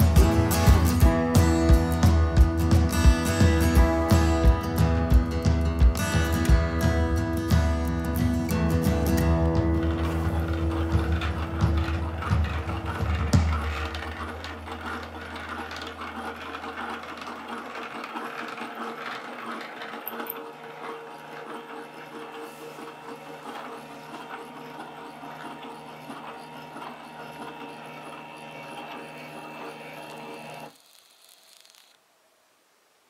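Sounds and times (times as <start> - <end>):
music: 0.0 - 15.5
stepper motors whirring: 0.0 - 32.0.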